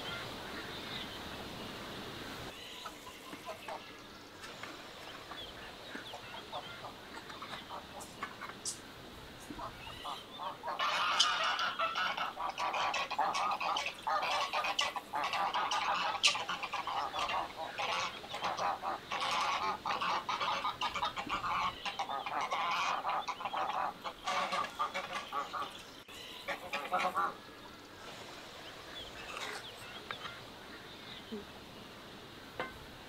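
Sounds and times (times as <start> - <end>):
geese honking: 5.1 - 8.8, 9.4 - 27.6, 29.1 - 30.9.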